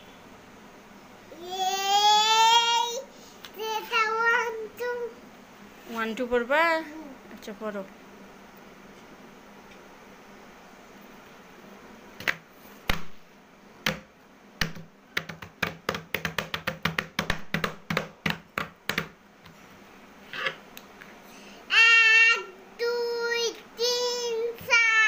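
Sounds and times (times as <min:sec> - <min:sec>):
hand tapping stiff paper: 0:14.6 - 0:19.2.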